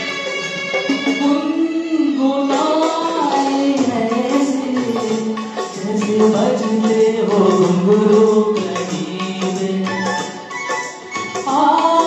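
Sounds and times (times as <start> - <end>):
man singing into microphone: 2.6 - 10.4.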